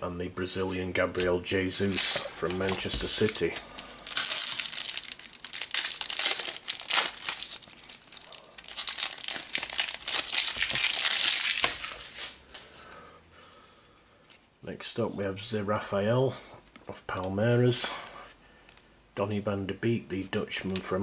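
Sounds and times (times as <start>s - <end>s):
wrapper tearing and crinkling: 1.8s - 12.4s.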